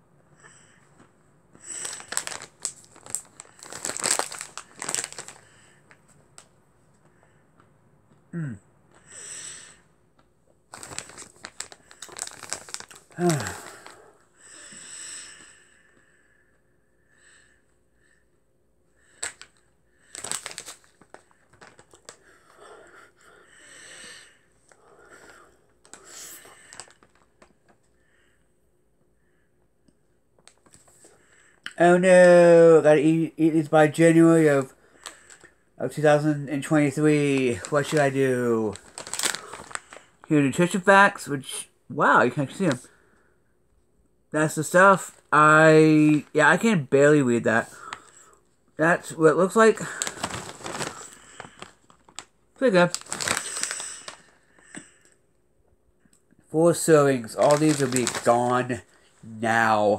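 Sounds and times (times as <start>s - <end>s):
snack bag crinkling: 1.0s - 6.5s, 10.7s - 14.1s, 19.0s - 23.1s, 23.8s - 27.8s, 30.4s - 31.2s, 34.6s - 35.6s, 36.6s - 40.8s, 47.5s - 48.4s, 49.0s - 55.2s, 56.7s - 59.3s.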